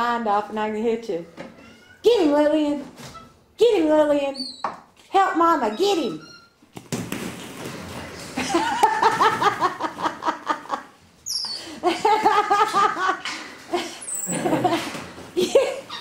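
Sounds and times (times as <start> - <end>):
person laughing hard: 8.4 - 10.9, 11.8 - 15.9.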